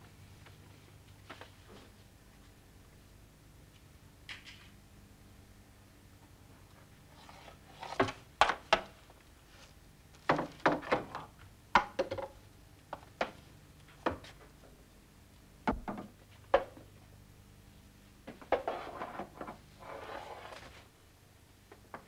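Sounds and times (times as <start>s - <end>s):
faint steady hum: 0.0s - 22.0s
sharp knocks and thumps: 15.7s - 16.7s.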